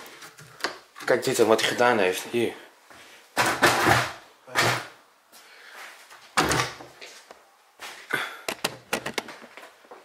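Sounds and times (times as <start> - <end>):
door clicks: 8.5 - 9.4.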